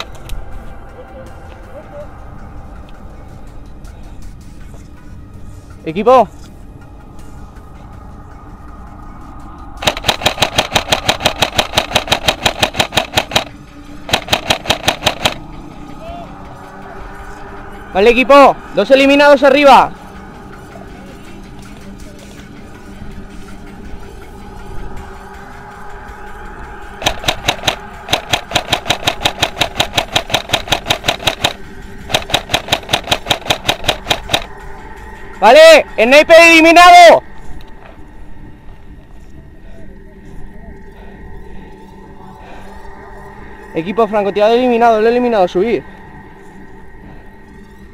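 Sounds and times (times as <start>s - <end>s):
airsoft gun full-auto bursts: 9.8s - 13.5s, 14.1s - 15.4s, 27.0s - 34.4s.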